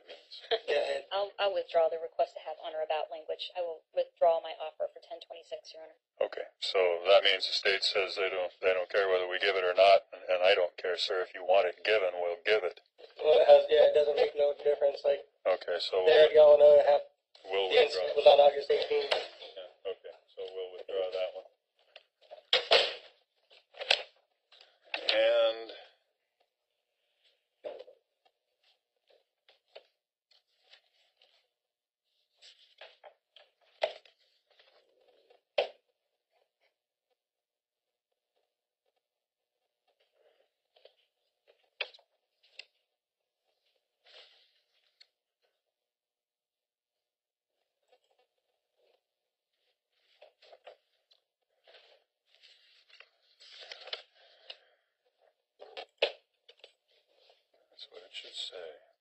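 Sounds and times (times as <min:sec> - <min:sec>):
paper crinkling and shuffling: 0:28.6 - 0:31.5, 0:32.1 - 0:35.4, 0:49.6 - 0:55.9
papers rustling and scraping: 0:50.0 - 0:54.7.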